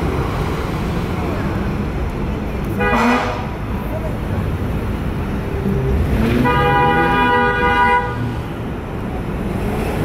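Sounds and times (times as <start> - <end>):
road traffic: 0.0 - 10.0
vehicle horn blast: 2.8 - 3.5, 6.2 - 8.2.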